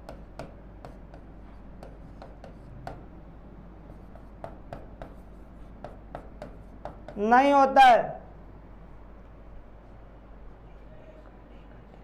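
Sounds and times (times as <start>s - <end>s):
marker pen writing on whiteboard: 0.0s - 3.2s, 3.8s - 7.3s.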